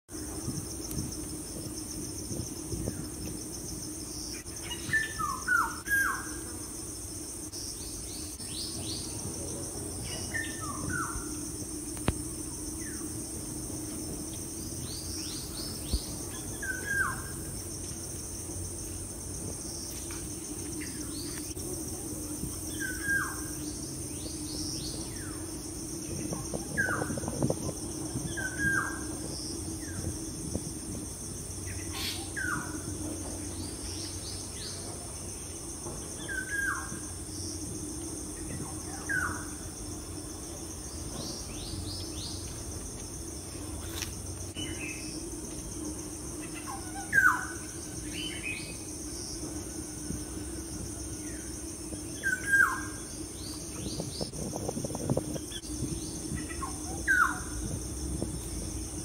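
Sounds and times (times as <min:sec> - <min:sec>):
high-pitched insect chorus: 0:00.1 - 0:59.0.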